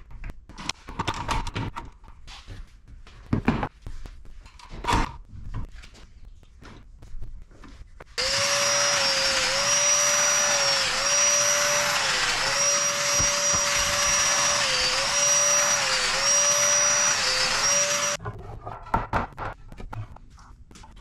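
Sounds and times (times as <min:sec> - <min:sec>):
power joiner whining: 0:08.2 - 0:18.2.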